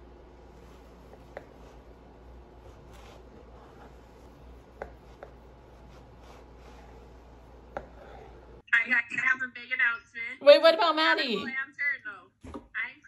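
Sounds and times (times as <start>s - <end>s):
knife rubbing through bread: 0.4s - 8.6s.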